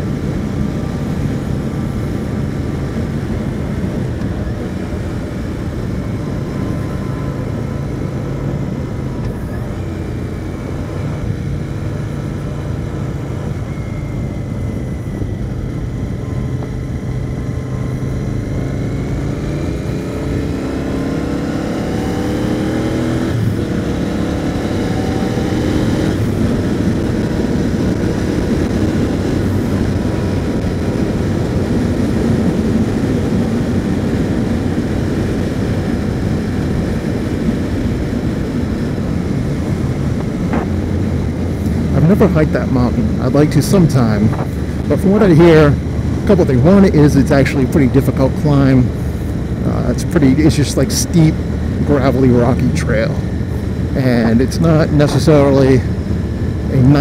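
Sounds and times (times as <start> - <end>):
motorcycle engine running: 0.0 - 57.0
wind and road noise: 0.0 - 57.0.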